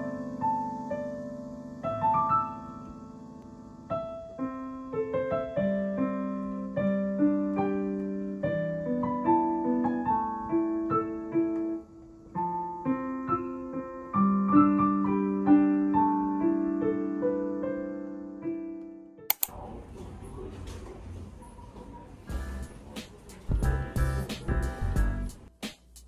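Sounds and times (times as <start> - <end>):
solo piano music: 0.0 - 19.3.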